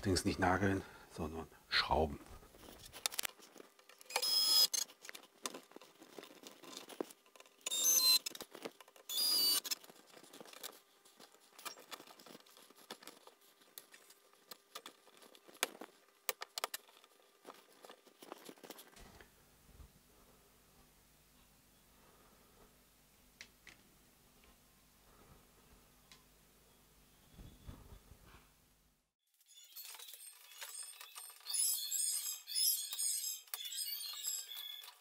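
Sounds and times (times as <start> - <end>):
screws and clips clinking: 2.6 - 19.0, 29.5 - 35.0
cordless drill whirring: 4.1 - 4.8, 7.7 - 8.3, 9.1 - 9.8.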